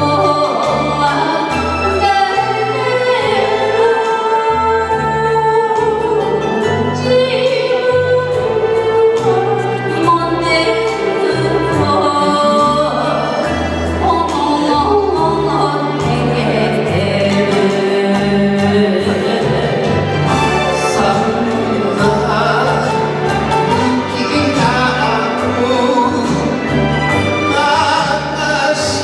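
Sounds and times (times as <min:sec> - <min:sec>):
woman singing into a microphone: 0:00.0 - 0:22.9
karaoke backing track: 0:00.0 - 0:29.0.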